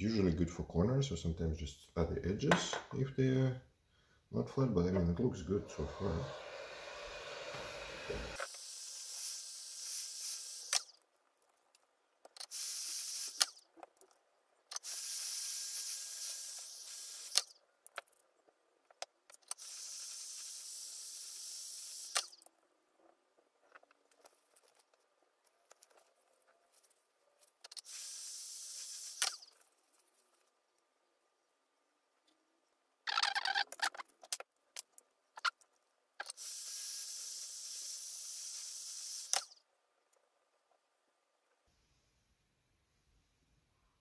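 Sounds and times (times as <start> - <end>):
heat gun hissing: 5.5 - 10.9, 12.4 - 13.6, 14.8 - 17.5, 19.5 - 22.4, 27.7 - 29.5, 36.2 - 39.5.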